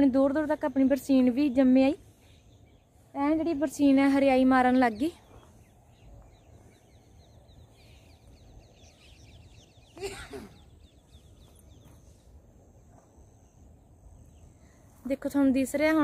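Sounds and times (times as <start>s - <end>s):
faint birdsong: 0.0s - 16.0s.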